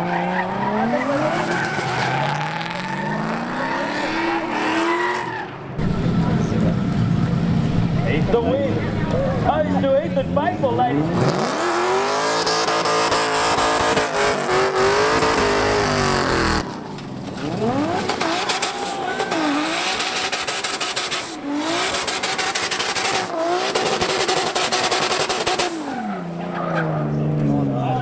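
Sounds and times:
tyre screech: 0.0 - 5.6, 12.4 - 27.3
car engines revving high: 0.0 - 28.0.

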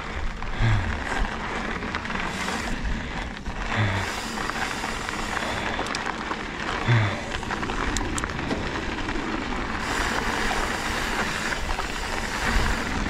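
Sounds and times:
bike rattling: 0.0 - 13.0
bike tyres crunching on dirt: 0.0 - 13.0
wind noise: 0.0 - 13.0.

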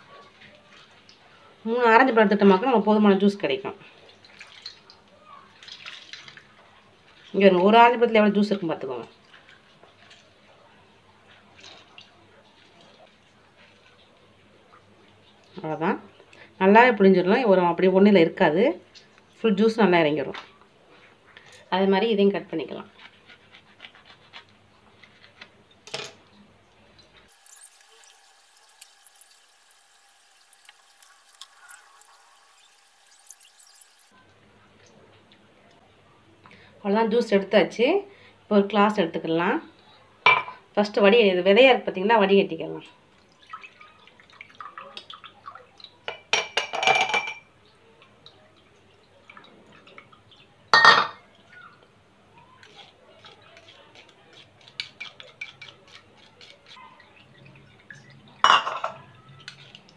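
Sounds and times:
juice trickling and dripping: 3.8 - 7.5, 25.7 - 34.2, 43.1 - 46.3, 47.6 - 59.9
splashing and clinking: 4.1 - 7.4
juice dripping into bowl: 26.8 - 34.1.

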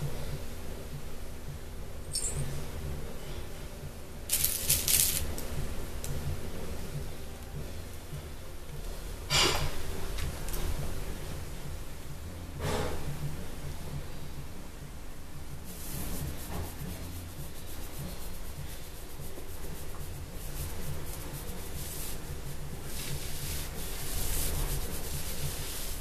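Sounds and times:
steady low hum: 0.0 - 26.0
scratchy rubbing and rustling: 4.3 - 5.4, 15.7 - 26.0.

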